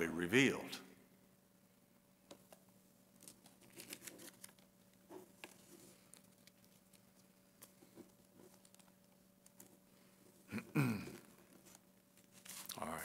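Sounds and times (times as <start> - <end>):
faint hum: 0.0 - 13.0
paper rustling: 3.2 - 9.8, 11.2 - 12.8.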